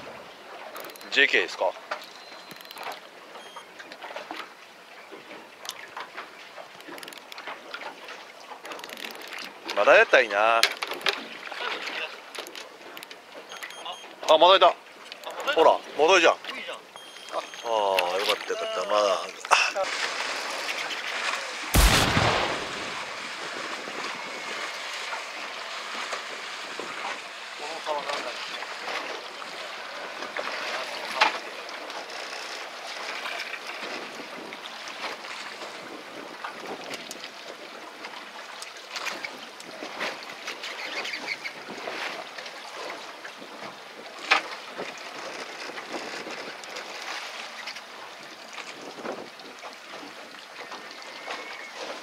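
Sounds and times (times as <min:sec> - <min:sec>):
sea noise: 0:00.0 - 0:52.0
water around boat: 0:00.0 - 0:52.0
wind: 0:00.0 - 0:52.0
sudden loud burst of noise: 0:21.8 - 0:24.1.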